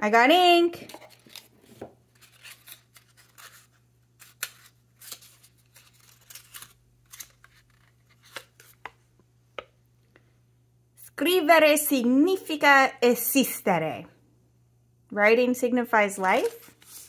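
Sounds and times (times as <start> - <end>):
paper crackling and rustling: 0.9 - 8.9, 16.3 - 17.0.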